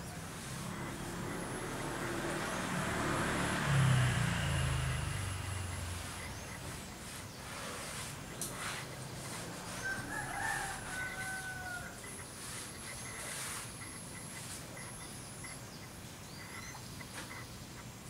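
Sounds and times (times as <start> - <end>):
outdoor background noise: 0.0 - 18.0
rooster crowing: 9.6 - 12.5.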